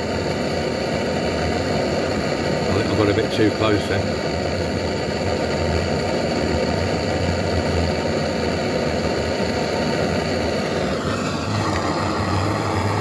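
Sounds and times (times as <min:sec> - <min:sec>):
blowtorch rushing hiss: 0:00.0 - 0:13.0.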